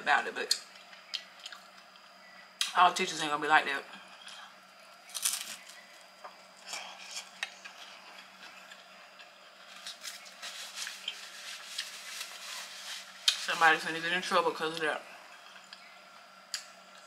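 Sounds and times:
chewing with small crunches: 0.5s - 2.2s, 4.1s - 13.4s.

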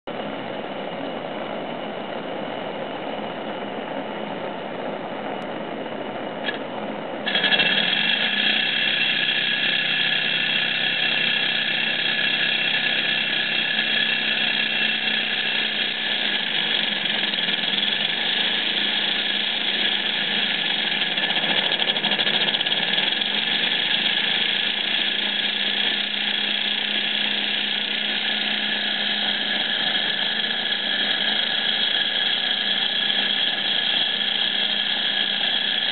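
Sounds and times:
high-pitched engine whine: 0.0s - 35.9s
torch flame hissing: 7.3s - 35.9s.

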